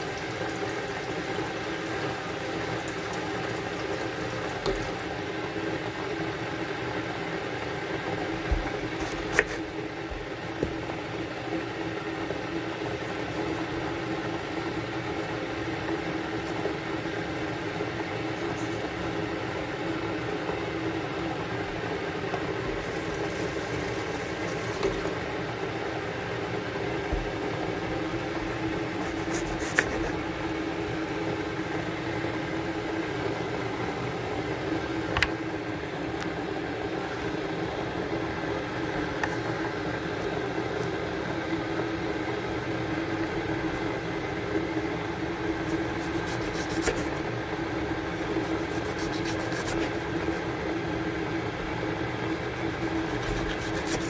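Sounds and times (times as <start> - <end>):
fan humming: 0.0 - 54.0.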